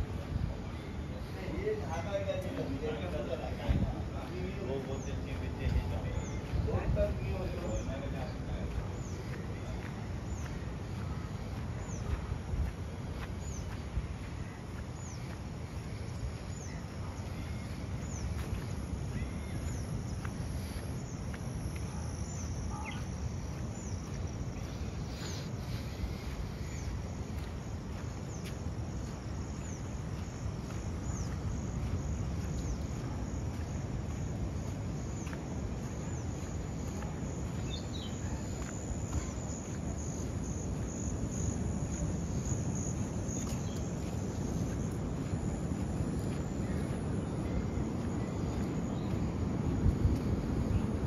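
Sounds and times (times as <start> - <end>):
insects trilling: 0.0 - 51.0
steady low rumble: 0.0 - 51.0.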